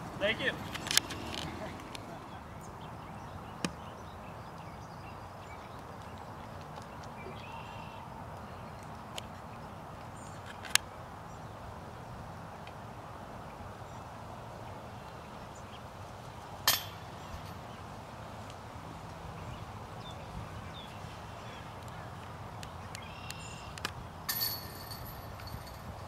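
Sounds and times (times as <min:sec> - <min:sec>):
outdoor background noise: 0:00.0 - 0:26.0
metallic clink with ring: 0:24.3 - 0:26.0.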